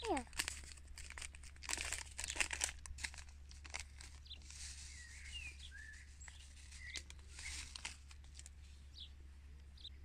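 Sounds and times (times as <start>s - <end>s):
paper seed packet rustling: 0.0s - 9.0s
bird chirping: 4.1s - 7.8s, 8.6s - 10.0s.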